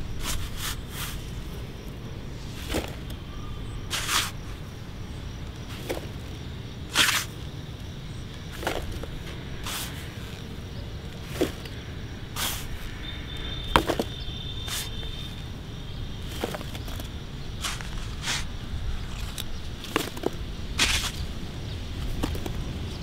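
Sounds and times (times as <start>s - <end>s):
low background rumble: 0.0s - 23.0s
toy shovels scraping soil: 0.1s - 1.6s, 2.4s - 3.2s, 3.9s - 4.6s, 5.6s - 6.2s, 6.9s - 7.5s, 8.5s - 15.4s, 16.2s - 21.3s
dirt dropping into plastic truck: 2.5s - 3.2s, 5.6s - 6.3s, 8.5s - 10.1s, 11.2s - 11.8s, 13.7s - 15.1s.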